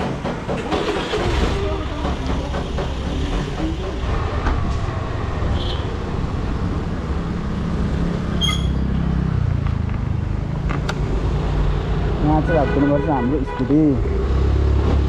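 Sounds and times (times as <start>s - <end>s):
short high beep: 8.4s - 8.8s.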